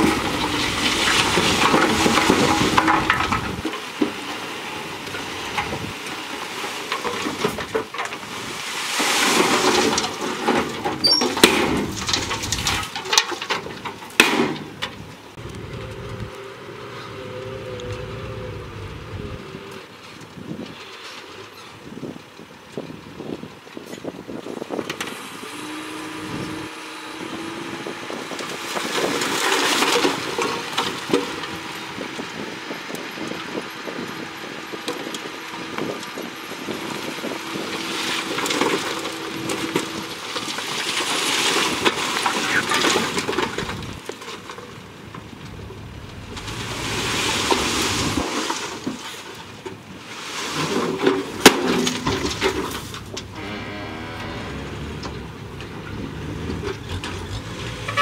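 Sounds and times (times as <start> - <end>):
rocks and earth sliding out: 0.0 - 16.4, 27.6 - 58.0
sharp crack: 11.3 - 14.9
truck bed hydraulic whine: 52.0 - 58.0.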